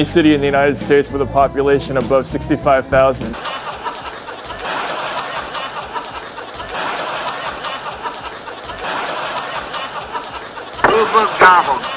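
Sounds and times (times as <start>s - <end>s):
audience laughing and applauding: 3.4s - 11.9s.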